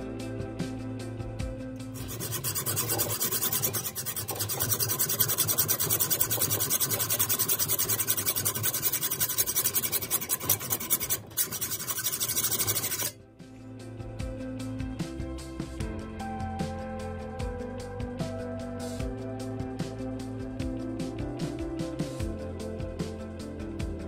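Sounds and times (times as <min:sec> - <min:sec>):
hacksaw rasping on metal: 0:01.9 - 0:13.2.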